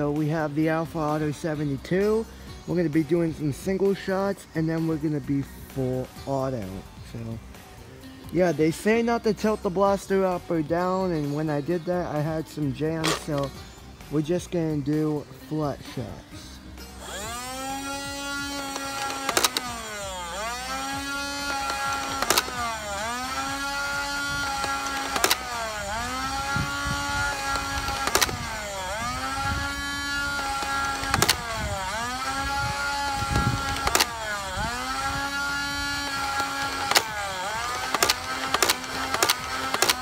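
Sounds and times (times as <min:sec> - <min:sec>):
blaster motor whine: 0:16.8 - 0:40.0.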